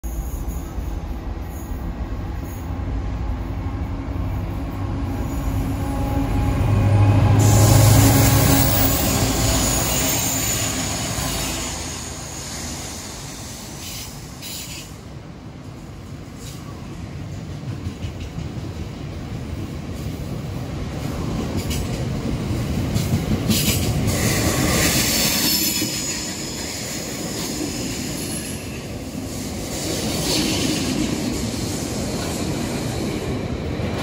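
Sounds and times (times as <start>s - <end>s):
diesel locomotive engines: 0.0s - 34.0s
high wheel squeal: 7.4s - 14.9s.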